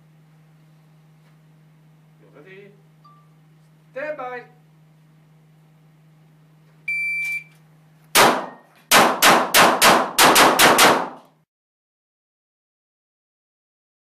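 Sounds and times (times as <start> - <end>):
shot timer start beep: 6.9 - 7.5
pistol shots: 8.2 - 11.2.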